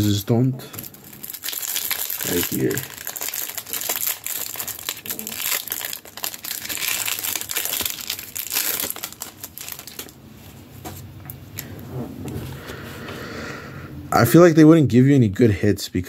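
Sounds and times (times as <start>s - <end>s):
plastic packaging crinkling: 0.8s - 10.3s.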